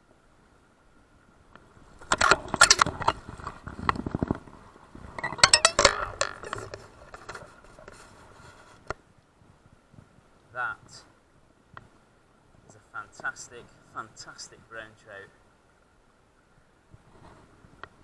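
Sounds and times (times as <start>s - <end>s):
sharp clicks knocks and clatter: 2.0s - 4.4s, 5.2s - 8.0s.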